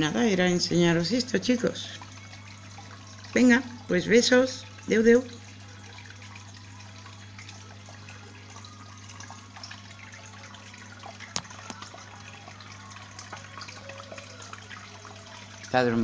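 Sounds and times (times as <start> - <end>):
low pump hum: 0.0 - 16.0
water trickling and bubbling: 0.0 - 16.0.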